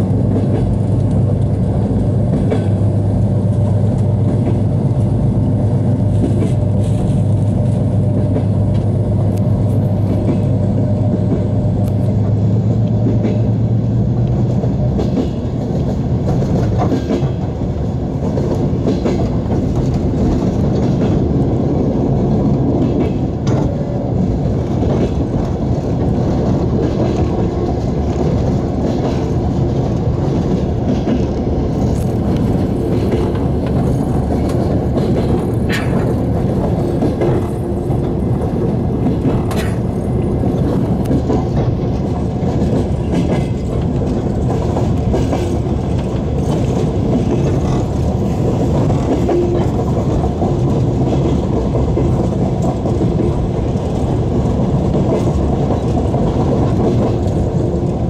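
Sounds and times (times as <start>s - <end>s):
train rumble: 0.0s - 58.0s
wheel clicks over rail joints: 24.6s - 58.0s.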